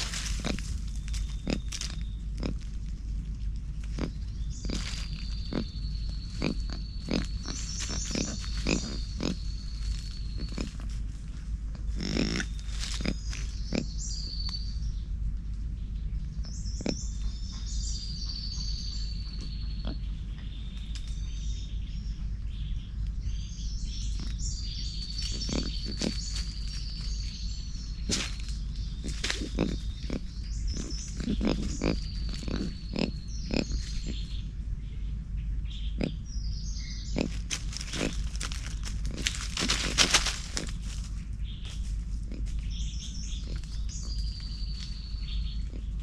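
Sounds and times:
dry leaves crackling and rustling: 0:00.0 - 0:13.8, 0:25.0 - 0:32.7, 0:37.2 - 0:42.7
steady low rumble: 0:00.0 - 0:46.0.

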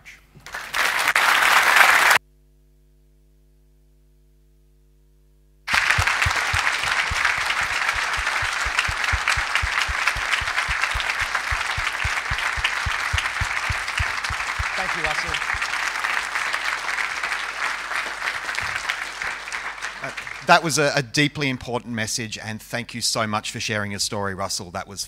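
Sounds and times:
audience applauding: 0:00.4 - 0:02.2, 0:05.7 - 0:20.8
faint steady hum: 0:02.2 - 0:18.1.

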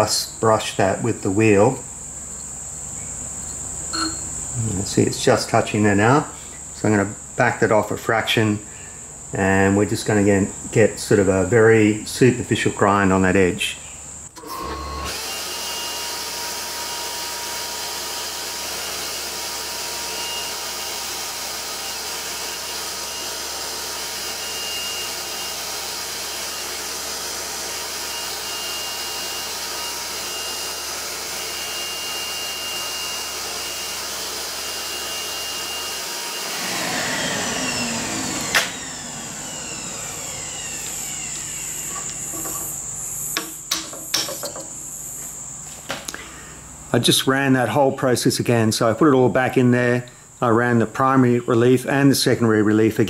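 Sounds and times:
machine whine falling in pitch: 0:03.9 - 0:04.4, 0:35.2 - 0:43.4
grinder machine whirring: 0:14.4 - 0:44.7.

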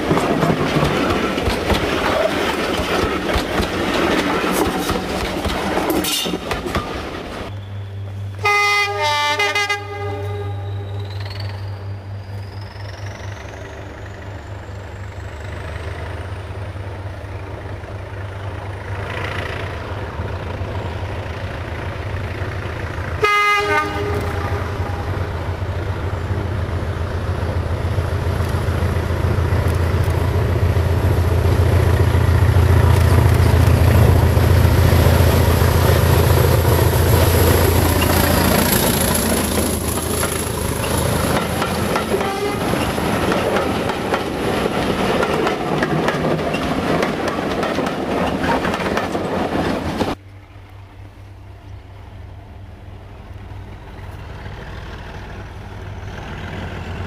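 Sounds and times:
train wheels rushing over rails: 0:00.0 - 0:07.5, 0:12.4 - 0:50.2
diesel locomotive engine drone: 0:00.0 - 0:57.0
train horn blast: 0:08.2 - 0:11.1, 0:23.2 - 0:25.4, 0:42.1 - 0:42.9.

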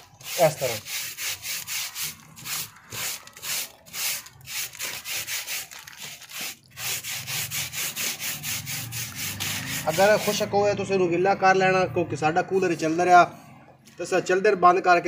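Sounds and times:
stiff brush scrubbing cooling pad: 0:00.0 - 0:10.5.

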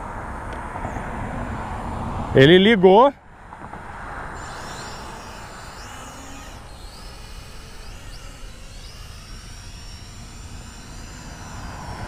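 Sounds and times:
faint high electric motor whines: 0:00.0 - 0:12.0.

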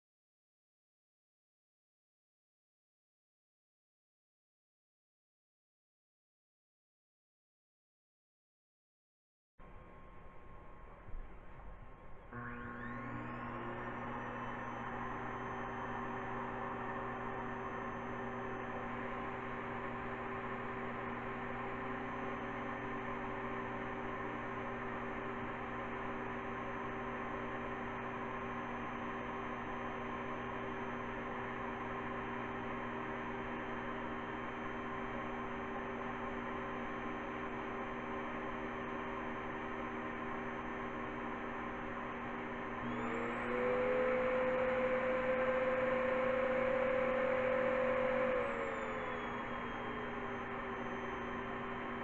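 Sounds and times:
vacuum cleaner humming: 0:12.3 - 0:52.0.

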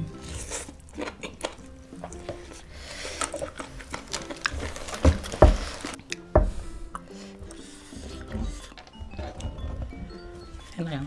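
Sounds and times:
chewing crispy chicken: 0:00.0 - 0:06.3
light background music: 0:00.0 - 0:11.0.

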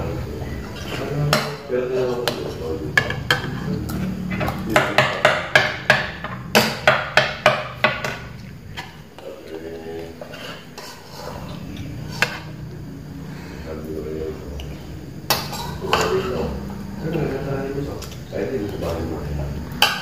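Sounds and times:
spoons clinking against bowls: 0:15.3 - 0:16.3, 0:19.7 - 0:20.0.

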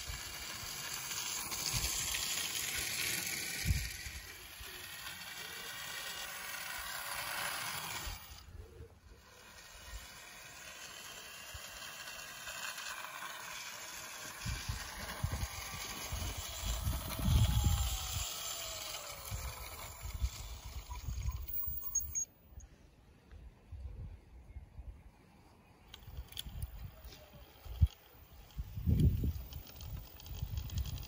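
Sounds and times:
model locomotive motor running: 0:00.0 - 0:22.7, 0:25.9 - 0:31.0
wind gusting on microphone: 0:14.3 - 0:21.6, 0:26.0 - 0:31.0.

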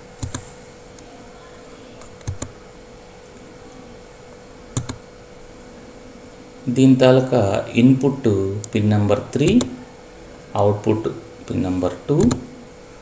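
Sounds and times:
faint electrical hum: 0:00.0 - 0:13.0
computer key clicks: 0:00.2 - 0:00.4, 0:02.0 - 0:02.5, 0:04.8 - 0:05.0, 0:12.2 - 0:12.4.

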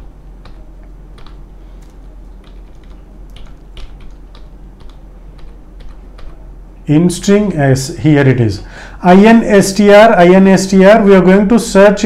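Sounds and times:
computer keyboard typing: 0:00.4 - 0:06.4.

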